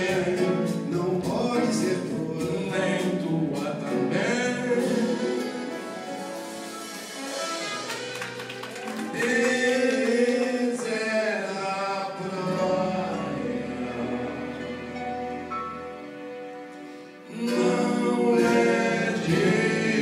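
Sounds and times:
person singing: 0:00.0 - 0:05.6, 0:17.2 - 0:20.0
band with piano guitars and bass: 0:00.0 - 0:20.0.

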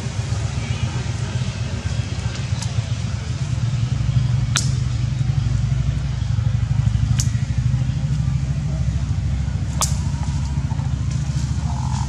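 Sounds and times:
low mechanical hum: 0:00.0 - 0:12.0
sharp high-pitched ticks: 0:07.0 - 0:07.8.

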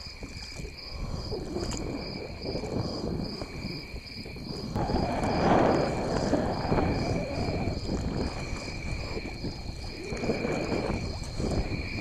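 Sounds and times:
water swishing along hull: 0:00.0 - 0:12.0
wind on microphone: 0:00.0 - 0:12.0
paddle splashing water: 0:05.1 - 0:12.0.

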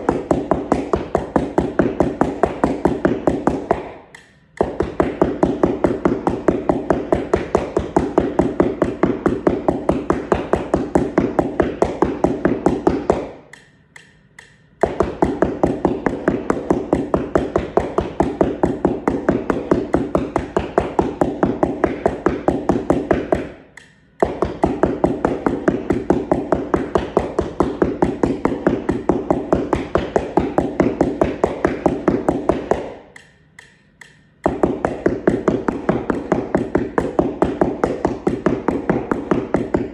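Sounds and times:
mallets tapping on paper mat: 0:00.0 - 0:39.9.

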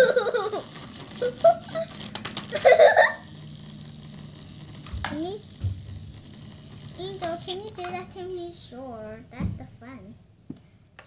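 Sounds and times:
plastic toys clicking and rattling: 0:00.0 - 0:08.6.

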